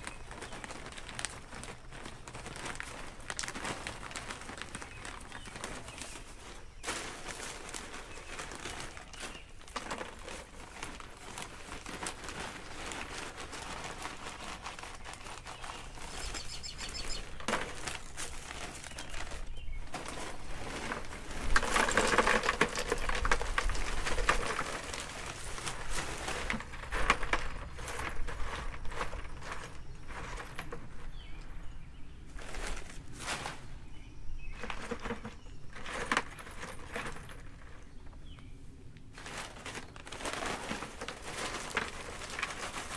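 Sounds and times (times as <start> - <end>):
rocks rattling into plastic bucket: 0.0 - 31.8, 34.4 - 38.1, 39.1 - 42.9.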